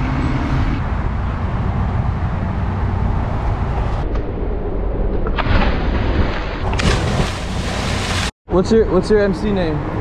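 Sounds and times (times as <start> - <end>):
person splashing into pond: 6.0 - 8.3.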